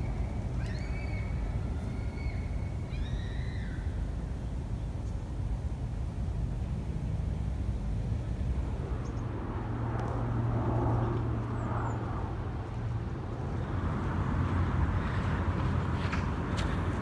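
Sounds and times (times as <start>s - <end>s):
distant traffic rumble: 0.0s - 17.0s.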